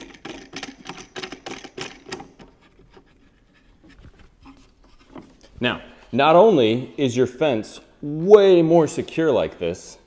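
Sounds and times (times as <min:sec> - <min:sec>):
fence clamp clicking and rattling: 0:00.0 - 0:02.8
handling scrapes: 0:02.3 - 0:06.1.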